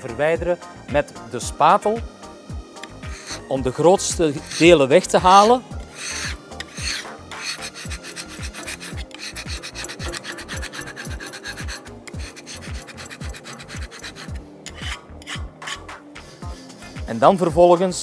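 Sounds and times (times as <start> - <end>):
scraper rasping on steel plate: 2.8 - 3.5, 4.2 - 17.5.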